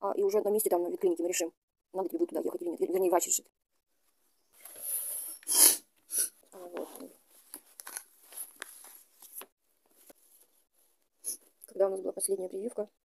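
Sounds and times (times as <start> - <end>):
phone handling rustling and clicks: 7.5 - 10.2.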